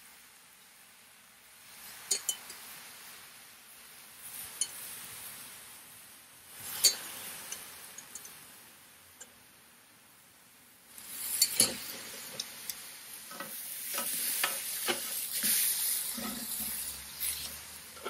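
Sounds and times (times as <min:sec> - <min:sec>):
sauce sizzling on griddle: 0:00.1 - 0:09.6, 0:10.8 - 0:18.0
metal spoon clinking on saucepan: 0:02.1 - 0:02.6, 0:11.3 - 0:11.8.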